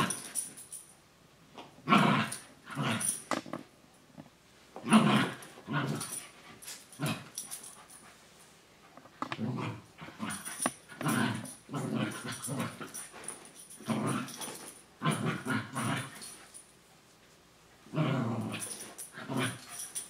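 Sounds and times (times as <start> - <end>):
dogs growling: 4.8 - 7.6, 9.2 - 16.4, 17.9 - 20.0.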